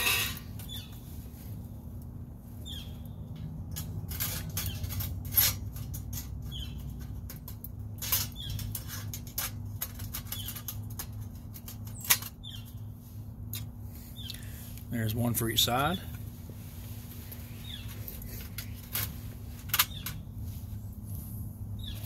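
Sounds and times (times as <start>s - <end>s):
metal plates clicking and scraping: 0.0s - 0.8s, 3.6s - 12.8s.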